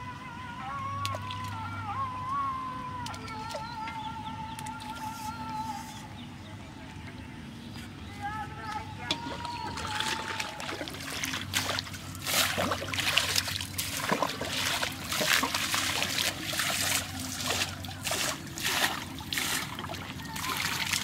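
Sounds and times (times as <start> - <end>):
water splashing: 9.0 - 21.0
metal plate scooping water: 9.1 - 21.0.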